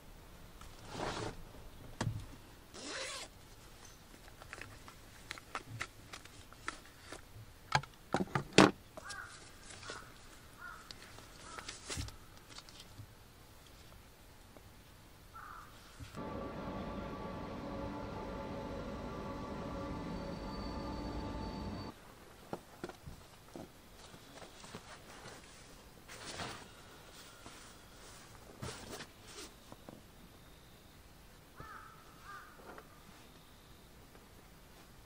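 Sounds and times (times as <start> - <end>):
cloth and plastic rustling: 22.6 - 29.9.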